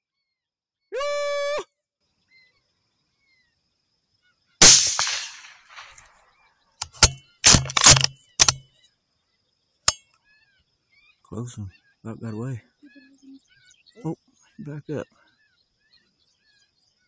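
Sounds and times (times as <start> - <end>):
rifle shot: 4.6 - 6.1, 6.8 - 8.6
sharp clicks and knocks: 6.8 - 8.6.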